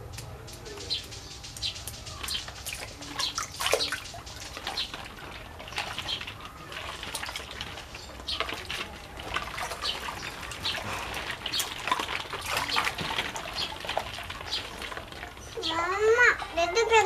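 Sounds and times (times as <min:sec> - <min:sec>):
water splashing and trickling: 0:00.0 - 0:17.0.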